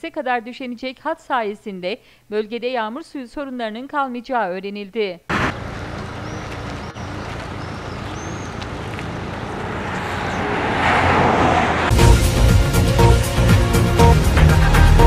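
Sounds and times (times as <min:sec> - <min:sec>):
outdoor background noise: 0:00.0 - 0:11.9
theme music with electronic beat: 0:11.9 - 0:15.0.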